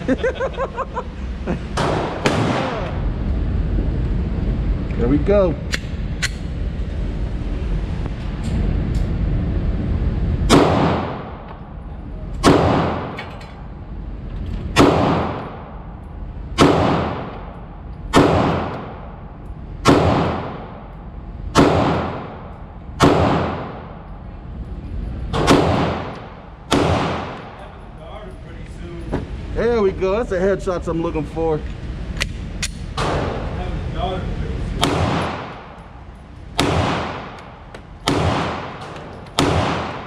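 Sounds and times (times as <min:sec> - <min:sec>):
pistol shots with echo: 0:01.8 - 0:03.0, 0:10.5 - 0:11.4, 0:12.4 - 0:13.2, 0:14.8 - 0:15.7, 0:16.6 - 0:19.0, 0:19.8 - 0:20.8, 0:21.5 - 0:24.0, 0:25.4 - 0:27.6, 0:34.8 - 0:35.8, 0:36.6 - 0:40.0.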